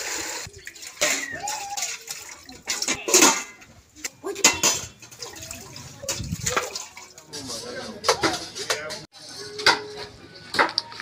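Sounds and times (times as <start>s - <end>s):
water splashing in a pot: 0.0s - 7.4s
splash or clatter: 4.4s - 7.3s.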